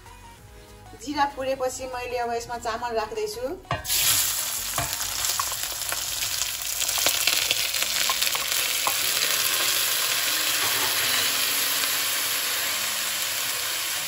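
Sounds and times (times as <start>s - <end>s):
rice sizzling in oil: 3.7s - 14.0s.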